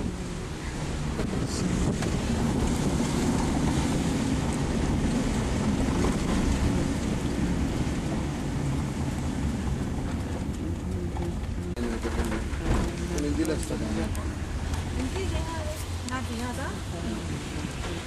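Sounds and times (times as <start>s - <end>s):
car engine and tyres rumbling: 0.0s - 18.0s.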